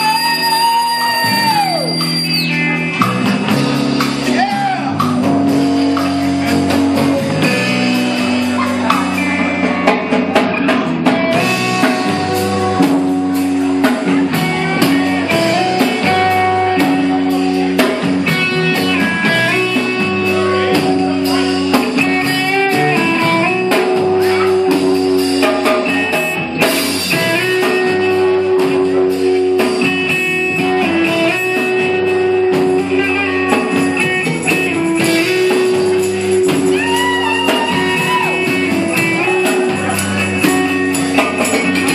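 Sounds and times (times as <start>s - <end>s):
electric guitar: 0.0s - 41.9s
rock band playing: 0.0s - 41.9s.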